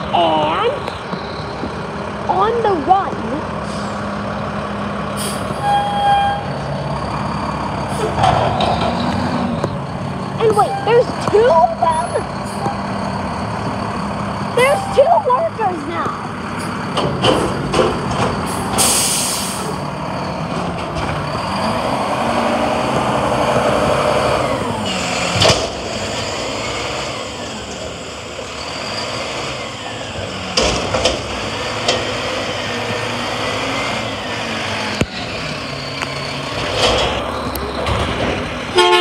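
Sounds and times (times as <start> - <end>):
diesel engine revving: 0.0 - 39.0
metal bangs and clanks: 8.0 - 9.5, 16.6 - 19.1
air hiss: 18.8 - 19.7.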